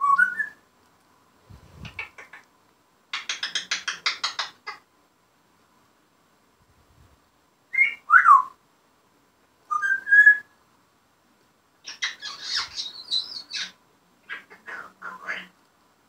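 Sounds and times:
parrot squawky chattering: 1.8s - 2.5s, 3.2s - 4.8s, 11.8s - 15.5s
parrot whistles: 9.7s - 10.5s.

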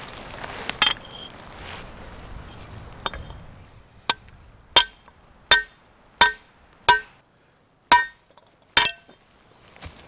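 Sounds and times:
hammer striking steel on anvil: 4.8s - 7.2s, 7.9s - 8.2s, 8.8s - 9.2s.

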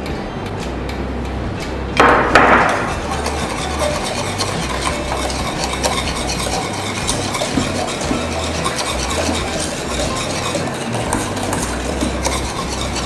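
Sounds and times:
whisk clicking against pan: 2.7s - 13.0s
whisk stirring in saucepan: 2.7s - 13.0s.

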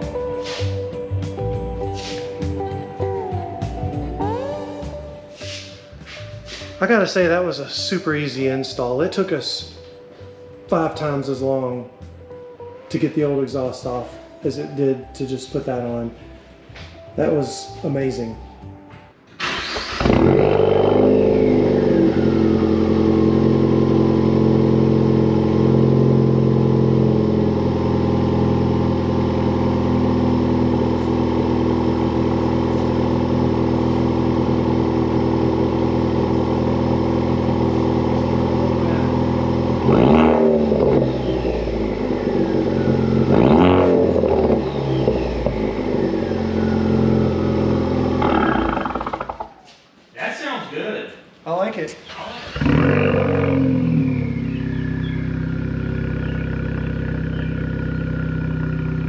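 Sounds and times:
car engine starting and idling: 19.3s - 49.6s, 52.0s - 59.0s
car engine revving: 19.4s - 49.6s, 52.4s - 59.0s.

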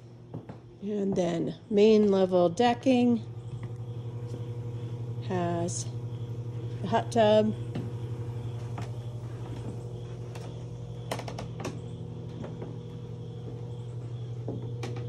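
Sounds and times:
footsteps on wooden deck: 0.0s - 2.3s, 3.4s - 4.5s, 7.7s - 15.0s
hot tub pump humming: 0.0s - 15.0s.

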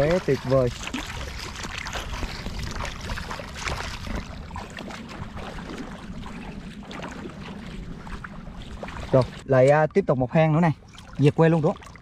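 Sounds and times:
feet wading through water: 0.0s - 12.0s
low rumble: 1.2s - 9.5s.

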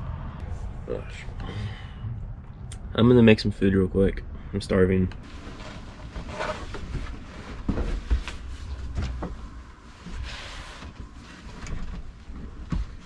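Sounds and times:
fabric curtain rustling: 5.2s - 9.0s.

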